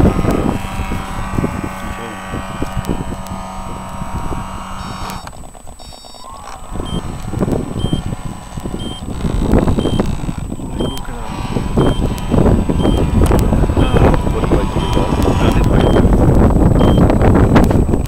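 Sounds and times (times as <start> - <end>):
boat motor whining: 0.0 - 18.0
short high beeps: 5.8 - 7.0, 8.8 - 9.0, 12.8 - 13.0, 15.8 - 16.0, 16.8 - 17.0.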